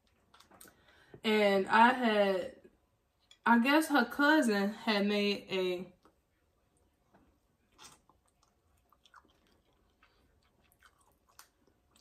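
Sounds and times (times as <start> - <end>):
faint chewing: 0.0 - 1.2, 6.0 - 12.0.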